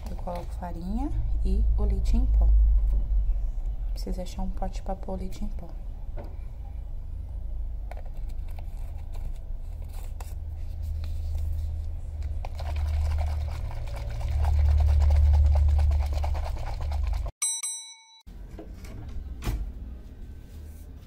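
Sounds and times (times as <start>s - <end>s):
plastic bottle shaken with sloshing: 12.2s - 17.3s.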